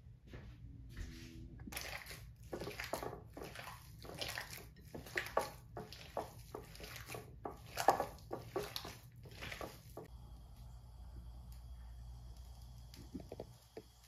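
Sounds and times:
hand squishing mashed potatoes: 1.7s - 10.1s.

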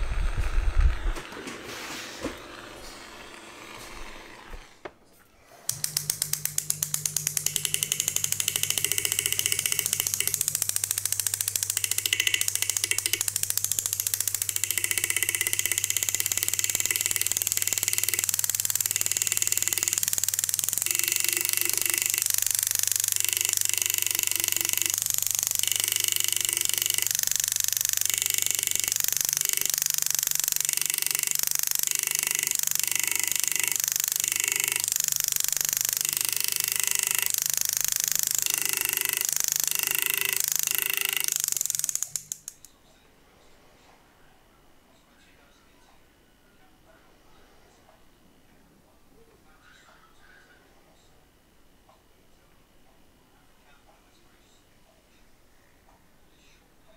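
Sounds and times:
engraving handpiece hammering rapidly: 6.4s - 42.4s.

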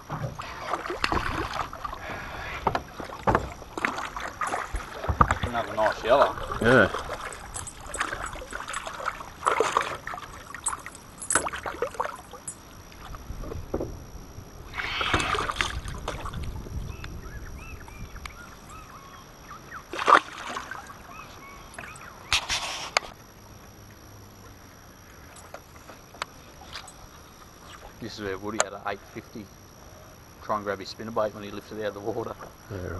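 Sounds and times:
splashes: 0.4s - 13.1s, 14.8s - 16.6s, 19.9s - 21.2s
fish splashing into water: 0.6s - 2.1s, 2.9s - 5.7s, 14.8s - 16.6s, 19.9s - 21.1s
knocks and rubbing against boat: 2.4s - 10.1s.

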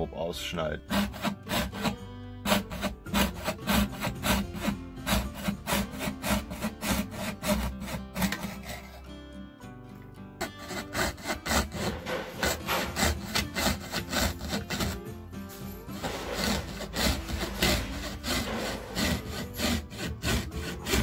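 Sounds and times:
hand saw cutting board: 0.8s - 9.2s, 10.4s - 21.0s.

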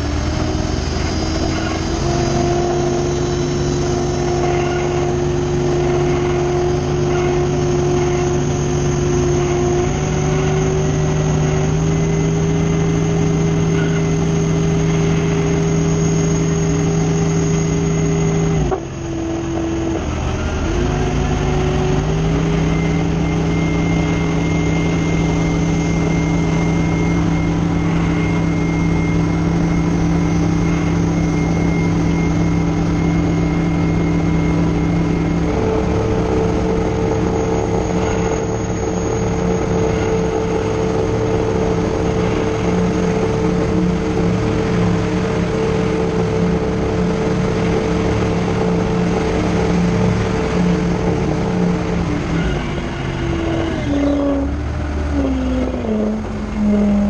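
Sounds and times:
tug engine running: 0.0s - 57.0s.

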